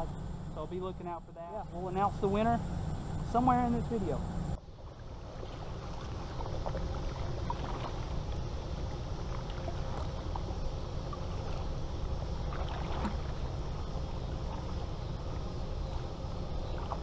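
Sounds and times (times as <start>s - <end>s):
steady low rumble: 0.0s - 17.0s
paddle stroking through water: 3.3s - 17.0s
water splashes and drips: 4.8s - 15.5s.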